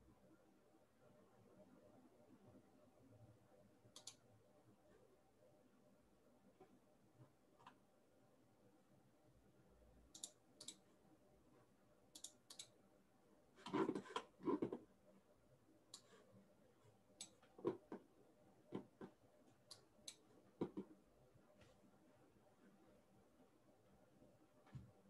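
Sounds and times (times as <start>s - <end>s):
mouse and keyboard clicks: 3.9s - 4.2s, 10.1s - 10.8s, 12.2s - 12.8s.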